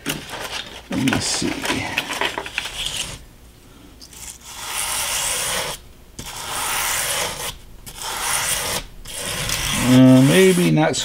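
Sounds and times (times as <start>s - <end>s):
wire brush scraping paper: 2.6s - 3.2s, 4.1s - 11.0s.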